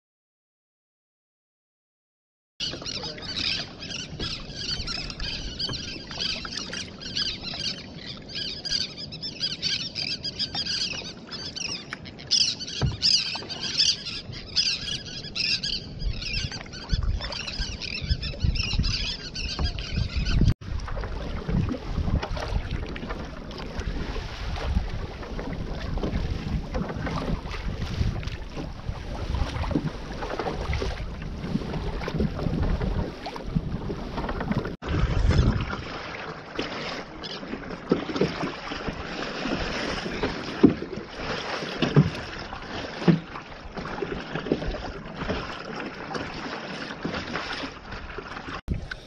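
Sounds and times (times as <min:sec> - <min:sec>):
water splashing along kayak hull: 0:02.6 - 0:49.0
wind rumble on microphone: 0:14.2 - 0:36.0, 0:48.6 - 0:49.0.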